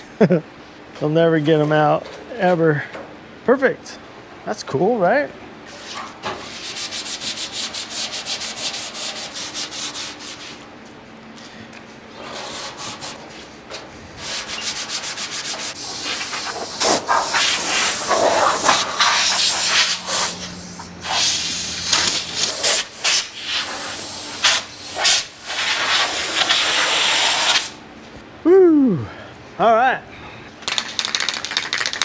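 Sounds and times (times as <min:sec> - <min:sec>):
hand sanding with sandpaper: 0:05.7 - 0:10.7, 0:12.2 - 0:13.6, 0:14.2 - 0:27.7.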